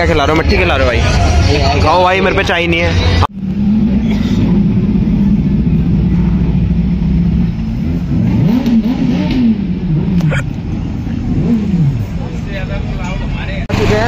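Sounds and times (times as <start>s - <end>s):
motorcycle engine revving: 3.3s - 12.9s.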